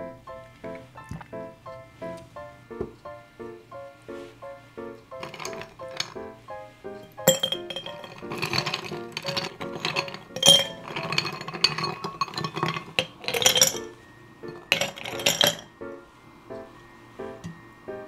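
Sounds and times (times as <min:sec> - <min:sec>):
light background music: 0:00.0 - 0:18.0
ice cubes clinking on glass: 0:05.2 - 0:06.2, 0:07.2 - 0:15.7.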